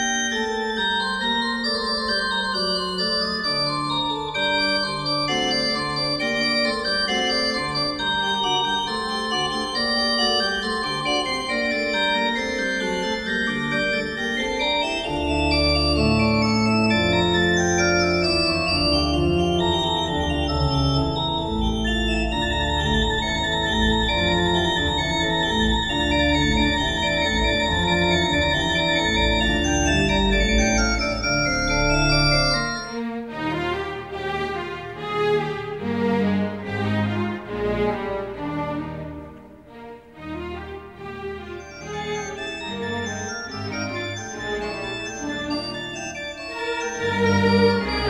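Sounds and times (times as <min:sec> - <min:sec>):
organ music: 0:00.0 - 0:48.0
deep bass organ part: 0:13.9 - 0:33.0.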